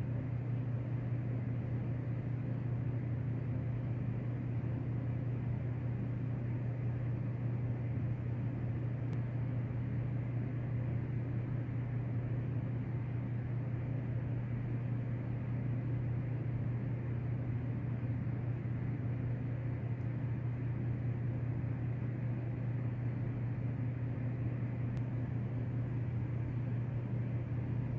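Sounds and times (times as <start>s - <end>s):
steady low hum: 0.0s - 27.9s
faint click: 9.1s - 9.3s, 24.9s - 25.1s.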